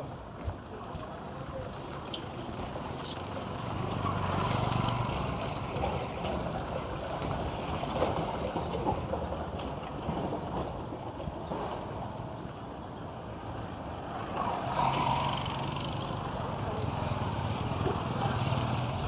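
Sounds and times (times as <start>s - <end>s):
street noise: 0.0s - 19.0s
distant motorcycles: 1.6s - 10.7s, 11.3s - 19.0s
motorcycle passing close: 14.2s - 19.0s.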